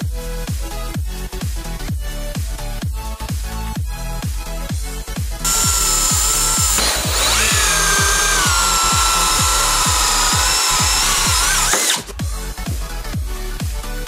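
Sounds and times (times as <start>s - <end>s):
drill with hole saw whining: 5.4s - 12.2s.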